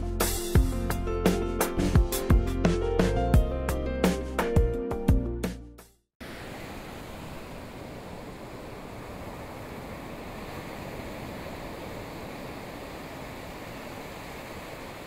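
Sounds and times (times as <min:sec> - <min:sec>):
rushing outdoor ambience: 0:06.2 - 0:15.0.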